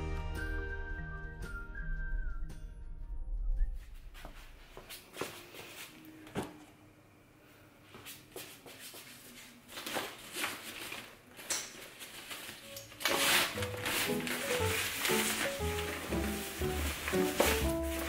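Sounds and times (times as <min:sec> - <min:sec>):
background music: 0:00.0 - 0:03.8, 0:12.7 - 0:18.0
shopping bag rustling: 0:09.3 - 0:18.0
items knocking and thudding: 0:13.0 - 0:18.0.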